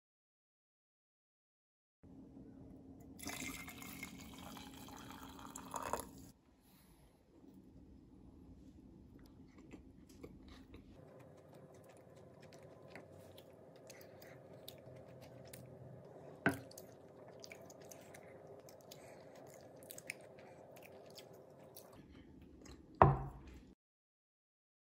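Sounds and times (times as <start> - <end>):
chewing toast: 9.2 - 23.6.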